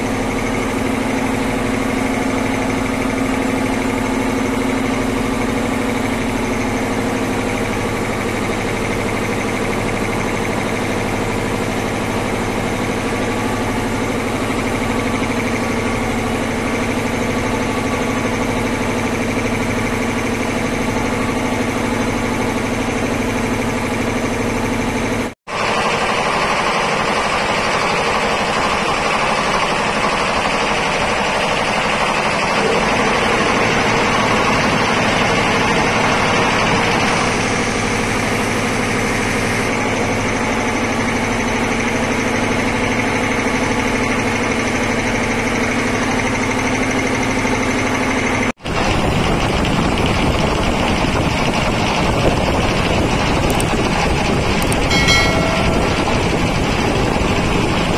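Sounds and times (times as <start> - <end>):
air compressor clattering: 48.8 - 57.9.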